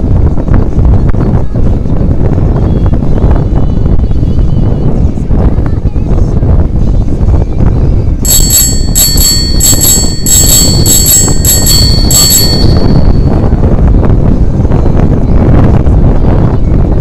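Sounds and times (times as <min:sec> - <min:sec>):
wind rumble on microphone: 0:00.0 - 0:17.0
bicycle bell ringing: 0:08.3 - 0:13.5.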